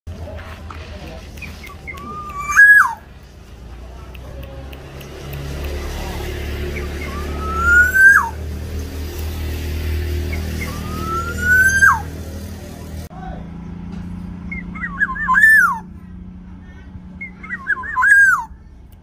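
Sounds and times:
bird whistling call: 1.4 - 3.1, 6.8 - 8.4, 10.3 - 12.2, 14.5 - 15.9, 17.2 - 18.6.

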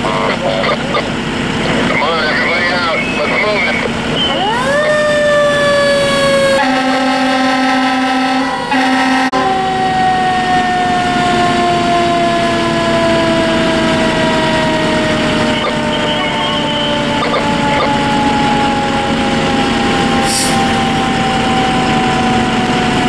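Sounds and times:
fire engine siren wailing: 0.0 - 23.0
air horn blasts: 6.5 - 9.6, 20.2 - 20.8.

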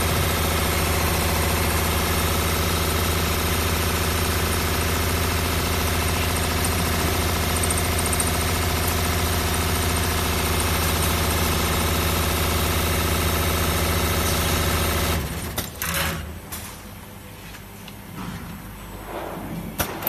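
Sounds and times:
winding machine humming: 0.0 - 15.4.

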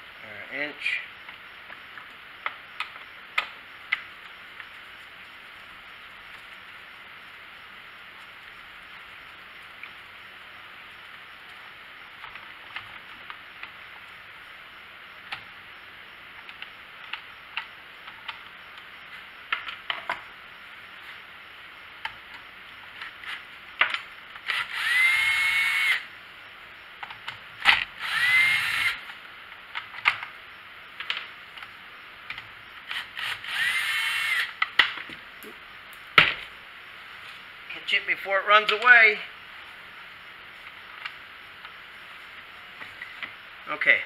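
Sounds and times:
cordless drill whining: 24.4 - 26.1, 28.0 - 29.0, 32.9 - 34.6.

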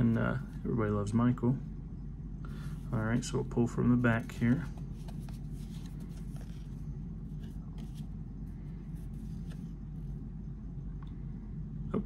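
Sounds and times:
steady low hum: 0.0 - 12.0
trading cards rustling and clicking: 3.1 - 8.2.

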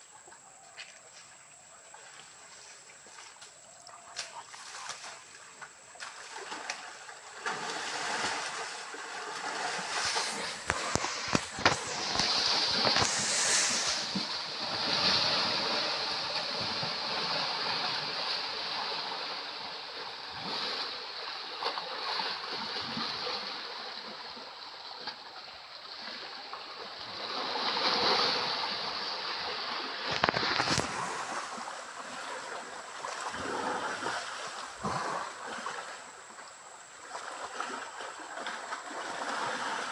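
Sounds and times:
water splashing and sloshing: 0.0 - 39.9
flowing stream rushing: 4.5 - 22.1, 27.1 - 39.9.

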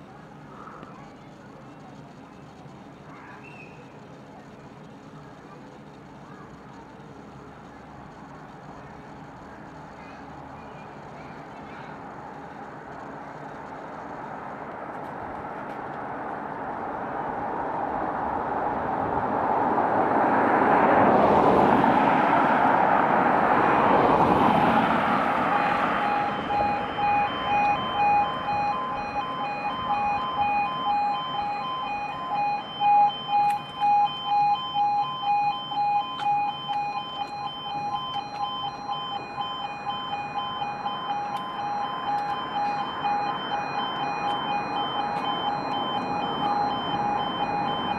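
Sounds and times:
vehicle passing close by: 17.5 - 29.2
warbling crossing alarm: 23.5 - 47.9.

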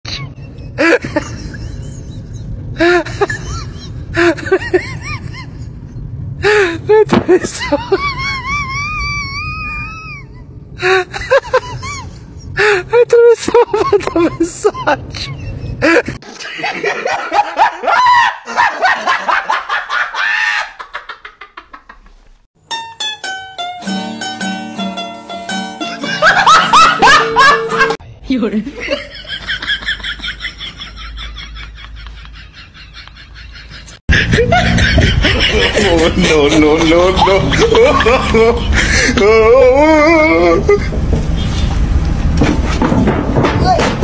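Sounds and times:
high-pitched laughing: 7.0 - 12.2, 25.8 - 28.0, 28.9 - 40.9
steady low rumble: 34.1 - 42.5.

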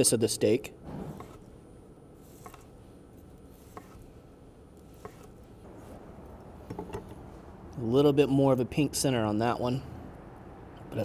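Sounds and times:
knife slicing steak: 2.2 - 2.8, 3.5 - 4.1, 4.8 - 5.4
knife knocking on wooden board: 6.7 - 7.1.

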